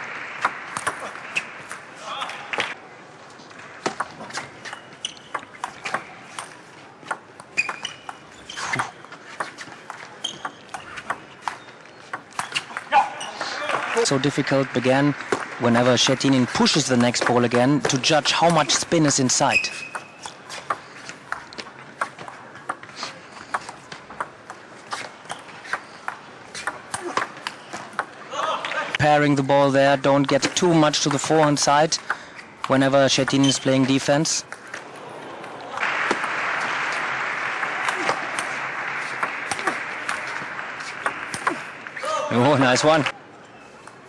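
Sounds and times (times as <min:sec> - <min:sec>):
brief squeaks: 0:07.6 - 0:09.0.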